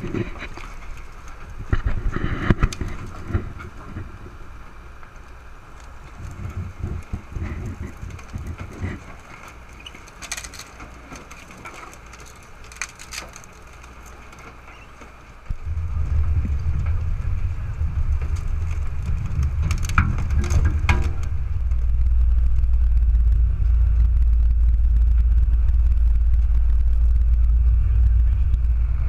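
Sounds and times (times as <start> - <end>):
deep machine rumble: 0.0 - 29.0
garden waste crackling in shredder: 0.0 - 29.0.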